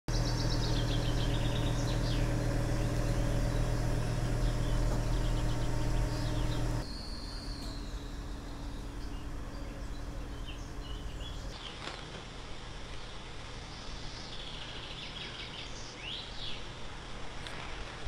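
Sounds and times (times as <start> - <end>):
engine idling: 0.1 - 11.6
small birds chirping: 0.1 - 11.8.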